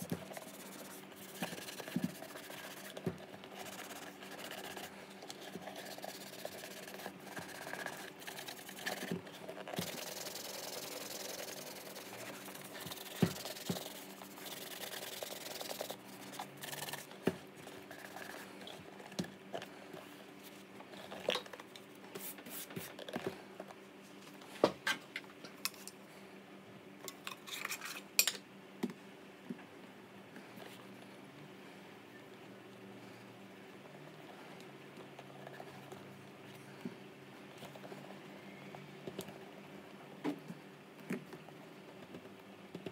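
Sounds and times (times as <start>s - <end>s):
cloth buffing leather boot: 5.5s - 17.0s.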